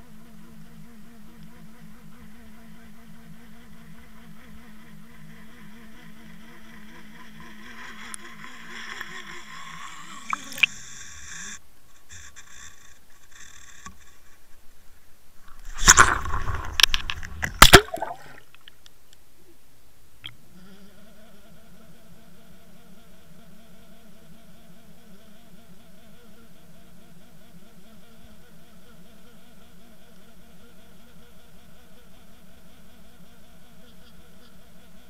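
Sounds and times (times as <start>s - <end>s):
water sloshing: 15.4s - 18.8s.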